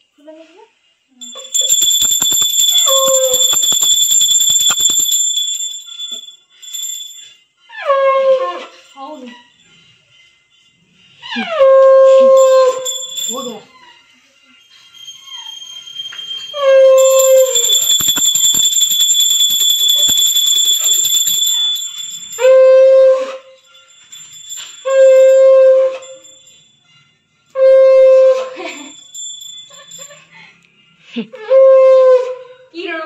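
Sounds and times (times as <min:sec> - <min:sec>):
metal hand bell ringing: 0:01.2 - 0:07.3, 0:12.1 - 0:13.7, 0:15.0 - 0:23.2, 0:23.8 - 0:26.8, 0:28.6 - 0:30.3.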